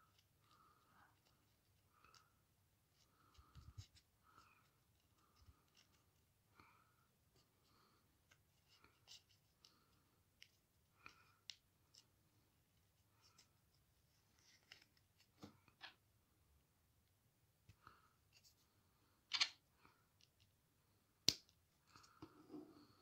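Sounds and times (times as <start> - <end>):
plastic pieces clicking and scraping: 19.3 - 19.6.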